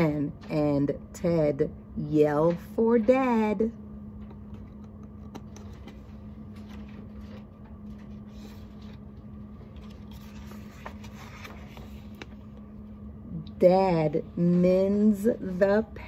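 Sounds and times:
low room hum: 0.0s - 16.0s
book page turning: 5.3s - 12.6s.

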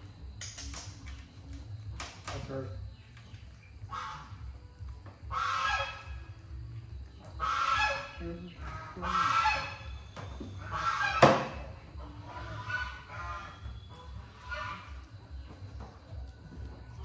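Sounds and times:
harsh animal calls: 3.8s - 4.6s, 5.2s - 6.4s, 7.3s - 15.4s.

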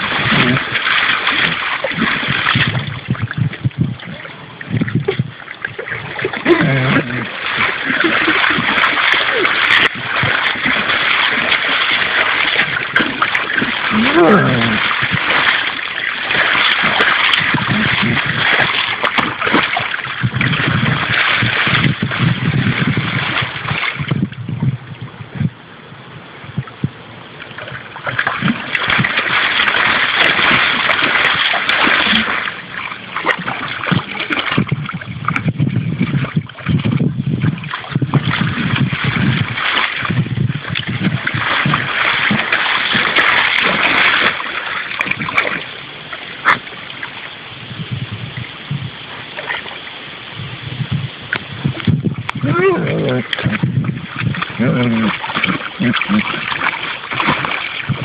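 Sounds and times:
dog splashing in shallow water: 0.0s - 24.6s, 27.4s - 50.1s, 51.2s - 58.0s.

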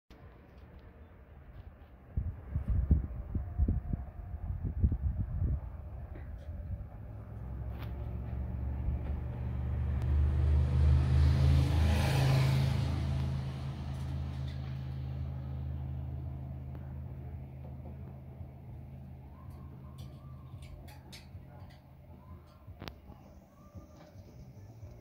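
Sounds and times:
wheels rolling on rails: 13.9s - 15.0s.

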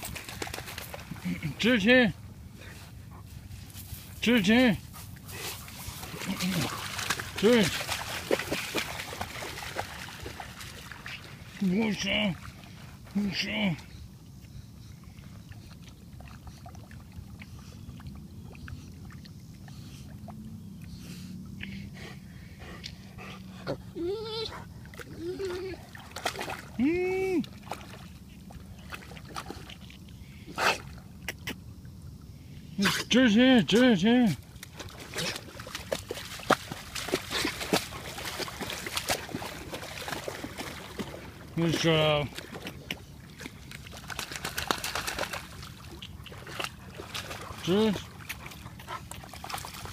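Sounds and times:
dog splashing in shallow water: 0.0s - 1.9s, 4.0s - 13.9s, 15.1s - 20.8s, 24.6s - 30.1s, 34.4s - 49.9s.

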